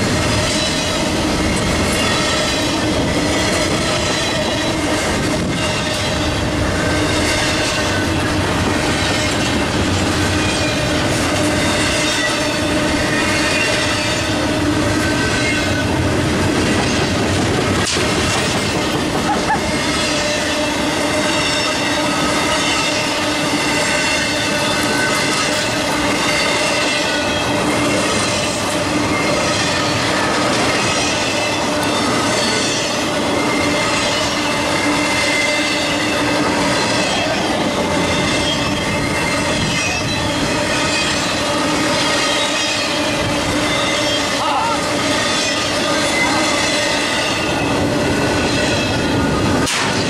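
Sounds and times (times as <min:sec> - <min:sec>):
freight train rumbling on rails: 0:00.0 - 0:50.0.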